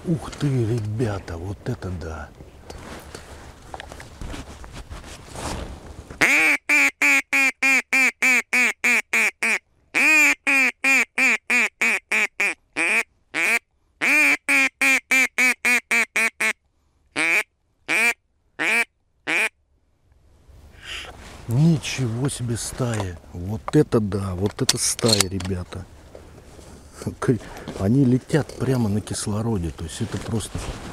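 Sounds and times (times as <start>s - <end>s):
duck call quacking: 6.2s - 16.6s, 17.2s - 19.5s, 20.8s - 21.1s.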